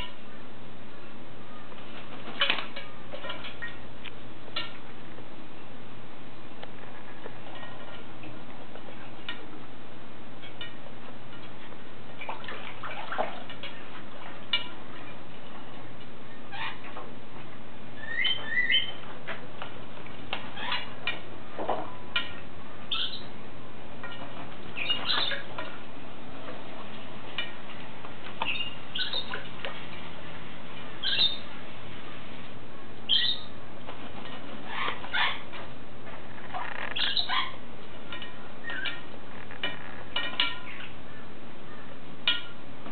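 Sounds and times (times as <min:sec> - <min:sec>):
water splashing: 0:11.6 - 0:15.6
parrot squawks: 0:18.0 - 0:19.0, 0:24.8 - 0:25.4, 0:31.0 - 0:31.4, 0:33.1 - 0:33.5, 0:34.7 - 0:35.5, 0:37.0 - 0:37.6.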